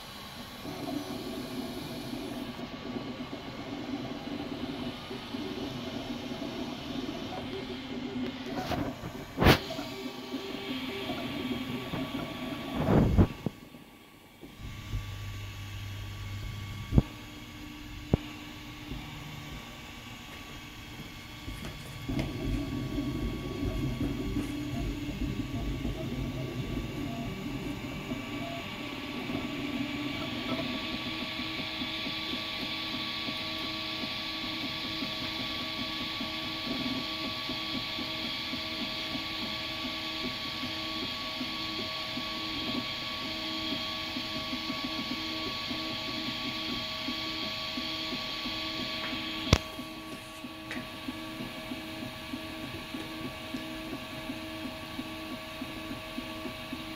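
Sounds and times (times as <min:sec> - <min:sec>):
printer mechanical whir: 0:00.0 - 0:56.9
high whine: 0:14.4 - 0:32.3.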